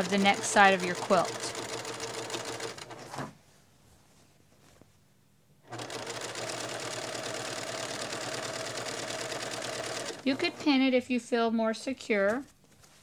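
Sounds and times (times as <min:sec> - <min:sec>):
electric sewing machine stitching: 0:00.0 - 0:03.3, 0:05.7 - 0:10.8.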